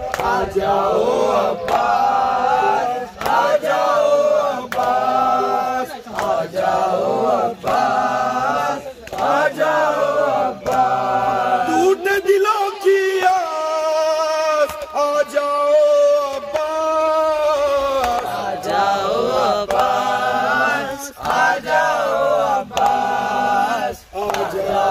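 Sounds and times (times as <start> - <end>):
men chanting a lament through microphone: 0.0 - 24.9.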